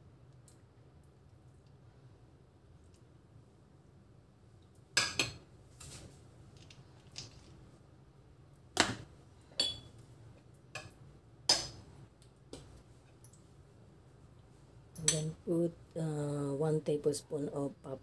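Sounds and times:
metal spoon clinking on glass dish: 9.6s - 9.9s.

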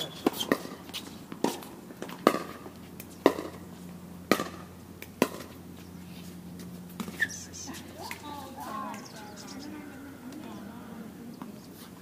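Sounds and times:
tennis ball hits: 0.0s - 3.6s, 4.3s - 5.6s.

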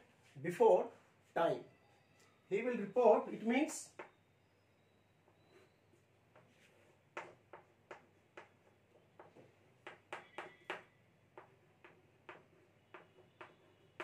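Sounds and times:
chalk tapping and scratching: 5.3s - 14.0s.

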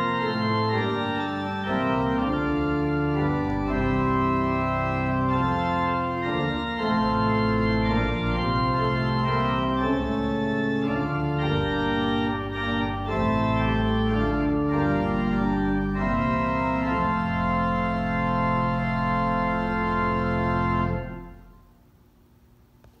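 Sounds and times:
church organ chords: 0.0s - 21.8s.

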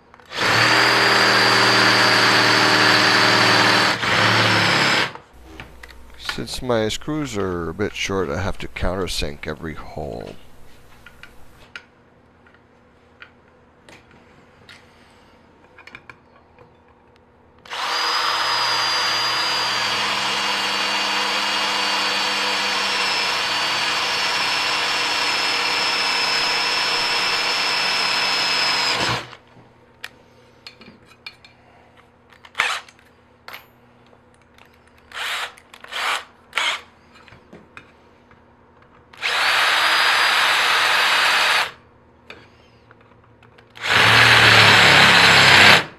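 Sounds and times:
power drill whining: 0.2s - 5.2s, 17.6s - 29.4s, 35.1s - 36.9s, 39.2s - 41.8s, 43.8s - 45.9s.

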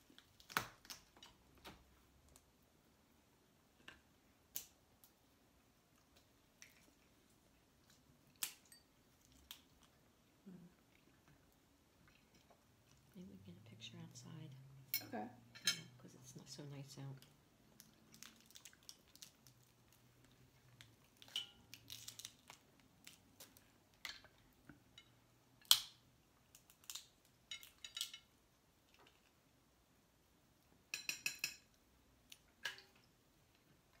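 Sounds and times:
utensils clinking on plates: 15.0s - 16.0s
crab shells cracking: 17.8s - 20.0s, 20.8s - 23.6s, 25.6s - 28.2s.

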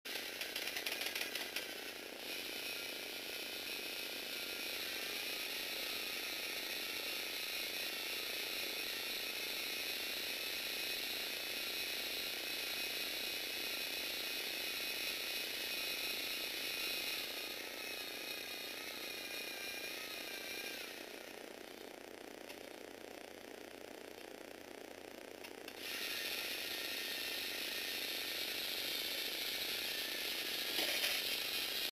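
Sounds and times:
plastic gears clicking: 0.1s - 2.6s, 25.5s - 31.9s
electric motor whirring whine: 0.1s - 31.9s.

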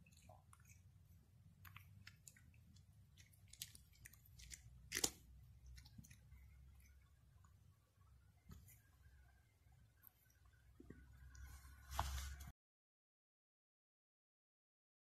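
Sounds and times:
cat chewing dry kibble: 0.0s - 7.6s.

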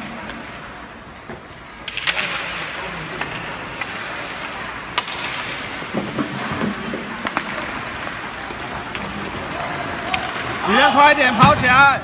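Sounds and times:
hockey sticks and puck clacking: 0.0s - 12.0s
skate blades scraping ice: 2.7s - 10.8s.

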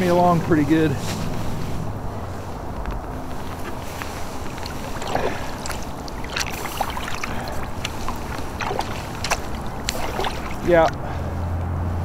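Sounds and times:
wind rumble on microphone: 0.0s - 12.0s
water splashing against kayak hull: 1.1s - 11.4s.

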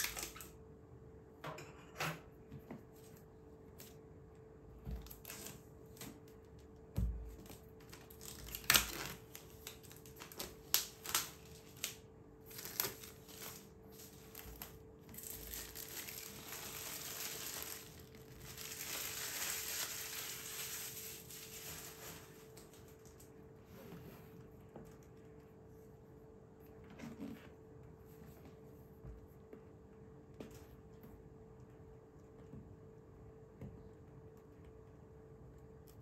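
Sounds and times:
wrapping rustling and crinkling: 5.0s - 23.5s.

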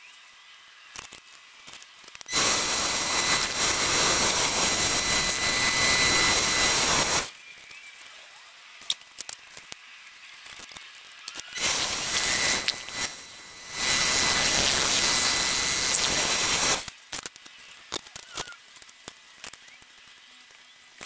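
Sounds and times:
drill boring into spinning wood: 2.3s - 7.3s, 11.6s - 16.9s.

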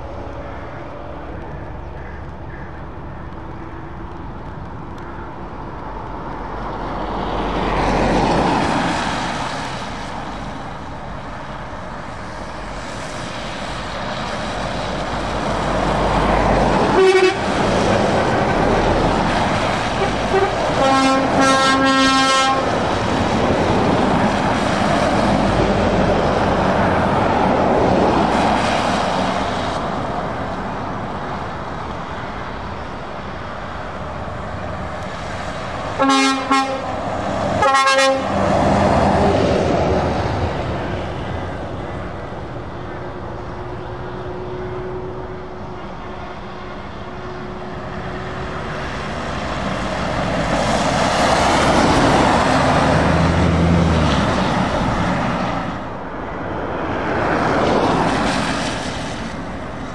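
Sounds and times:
heavy trucks passing on wet road: 0.0s - 59.9s
truck air horn toots: 16.8s - 17.6s, 19.9s - 22.7s, 36.0s - 37.0s, 37.6s - 38.4s.

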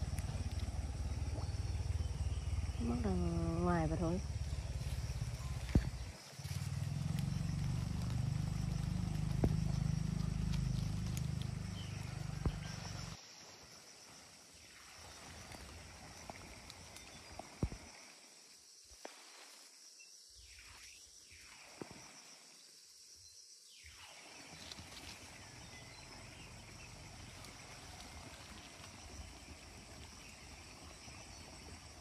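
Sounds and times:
low rumble: 0.0s - 13.2s.

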